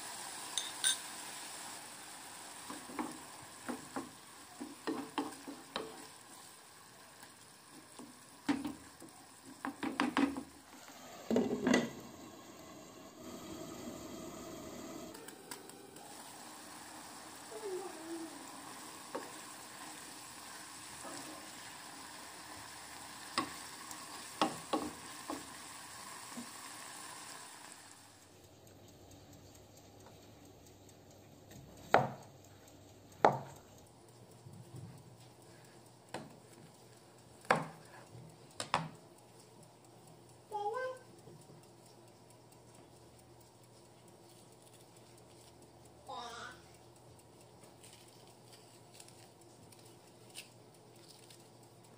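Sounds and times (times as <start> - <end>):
meat sizzling in a frying pan: 0.0 - 28.1
spatula stirring in pan: 2.6 - 12.1, 16.5 - 27.3
spatula tapping on pan: 2.7 - 6.1, 7.7 - 10.6, 19.0 - 19.4, 23.3 - 25.6, 31.8 - 32.3, 33.2 - 33.6, 36.1 - 36.4, 37.4 - 38.0, 38.6 - 39.0.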